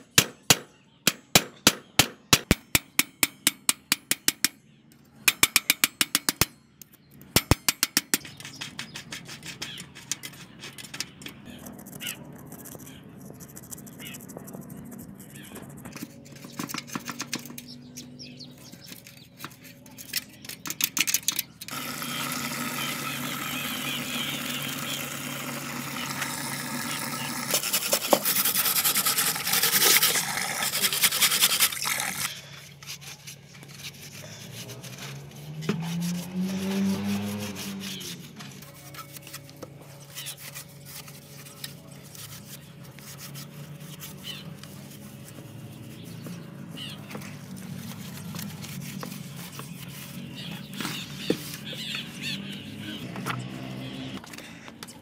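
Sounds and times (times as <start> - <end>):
metal tool scraping bicycle hub: 7.4 - 52.6
cloth pad scrubbing metal rim: 21.7 - 32.3, 32.9 - 39.4.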